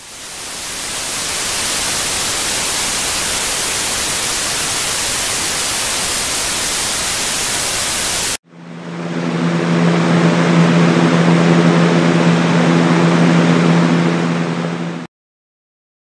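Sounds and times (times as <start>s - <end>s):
white noise hiss: 0.0s - 8.4s.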